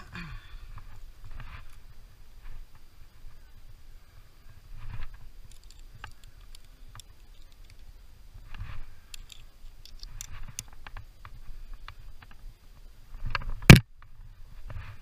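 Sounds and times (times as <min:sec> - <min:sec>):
climbing gear tapping on rock: 0:05.0 - 0:12.4.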